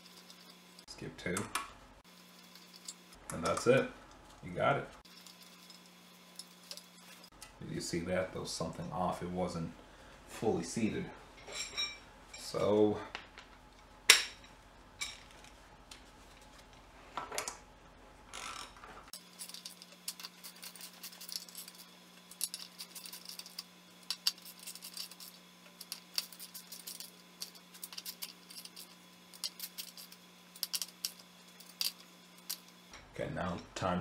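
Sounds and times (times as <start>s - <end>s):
metal tools clinking: 11.4s - 12.7s, 14.3s - 15.5s, 19.2s - 32.7s.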